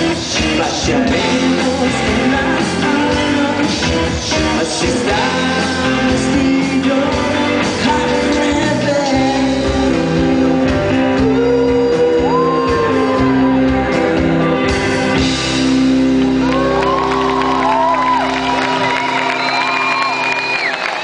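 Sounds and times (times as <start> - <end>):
bass guitar: 0.0 - 21.0
electric guitar: 0.0 - 21.0
person singing or shouting: 11.1 - 13.9.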